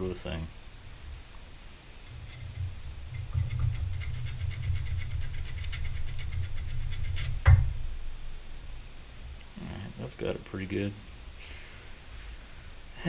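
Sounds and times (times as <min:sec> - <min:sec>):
hand file scraping metal washer: 0:02.2 - 0:07.4.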